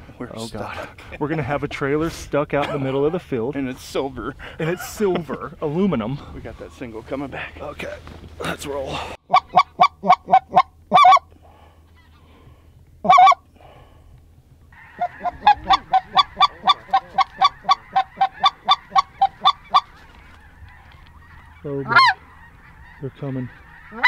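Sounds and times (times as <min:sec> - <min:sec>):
goose call honks: 0:09.3 - 0:11.3, 0:13.0 - 0:13.4, 0:14.8 - 0:24.0.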